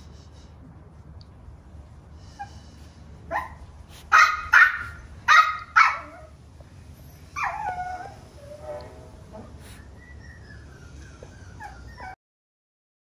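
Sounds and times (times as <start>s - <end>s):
puppy barking: 3.3s - 6.4s.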